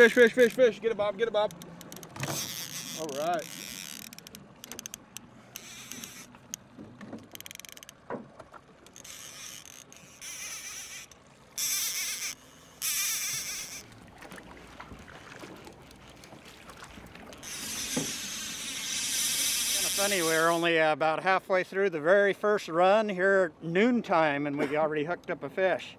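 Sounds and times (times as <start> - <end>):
fishing reel clicking: 0.0 - 0.8, 1.4 - 8.0, 8.8 - 13.9, 17.3 - 20.7
reel drag buzzing: 0.0 - 20.8.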